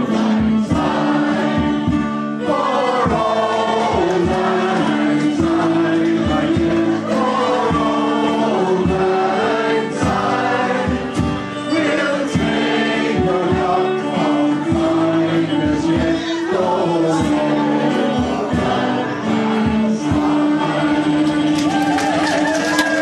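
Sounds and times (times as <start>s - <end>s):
acoustic guitar: 0.0s - 23.0s
frame drum beat: 0.0s - 23.0s
man singing: 0.0s - 23.0s.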